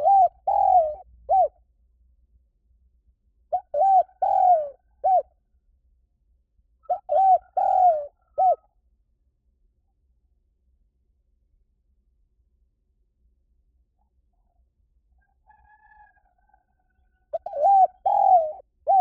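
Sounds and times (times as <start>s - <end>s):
dove cooing: 0.0s - 1.6s, 3.5s - 5.3s, 6.8s - 8.7s, 17.3s - 19.0s.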